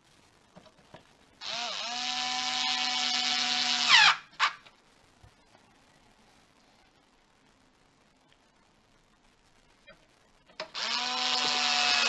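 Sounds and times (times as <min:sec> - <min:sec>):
electric screwdriver motor whine: 0:01.4 - 0:04.2, 0:10.7 - 0:12.0.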